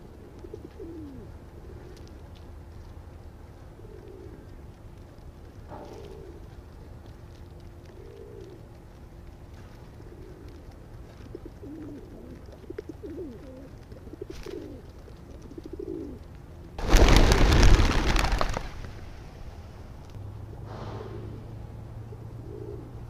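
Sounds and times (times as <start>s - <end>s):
pigeons cooing: 0.0s - 2.2s, 3.7s - 4.8s, 5.7s - 6.9s, 7.8s - 8.9s, 9.5s - 16.3s, 20.4s - 23.0s
clatter of pigeon wings: 3.8s - 16.2s, 16.8s - 19.2s.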